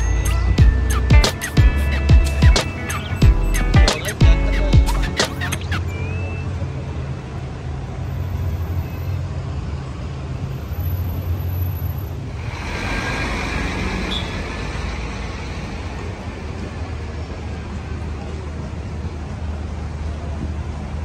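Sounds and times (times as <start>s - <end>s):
cars passing: 0.0s - 21.0s.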